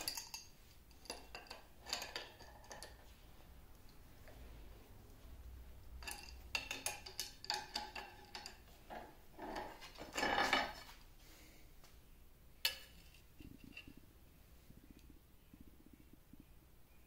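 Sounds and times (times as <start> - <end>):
metallic clatter: 0.0 - 3.1, 6.0 - 11.0.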